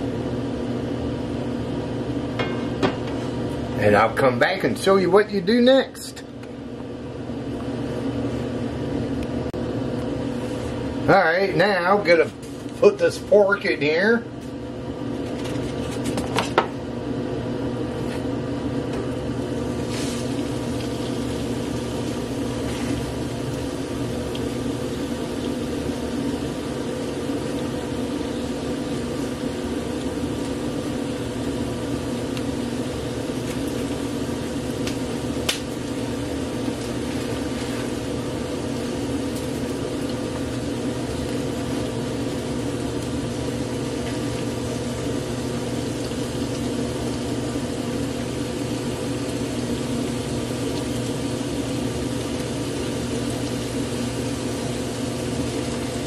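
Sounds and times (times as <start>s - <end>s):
meat sizzling in skillet: 19.4s - 56.0s.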